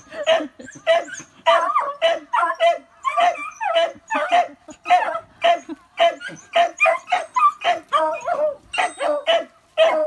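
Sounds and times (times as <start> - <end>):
puppies yapping: 0.0 - 10.0.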